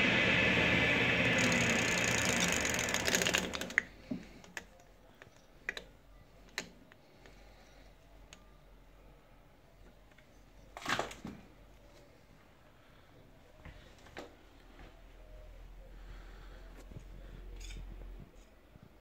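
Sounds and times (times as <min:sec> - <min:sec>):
small lathe running: 0:00.0 - 0:03.8.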